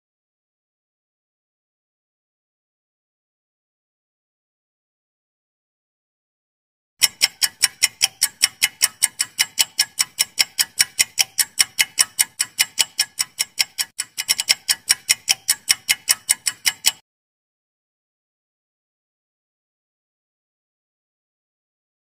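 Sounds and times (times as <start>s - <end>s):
clock ticking: 7.0s - 17.0s.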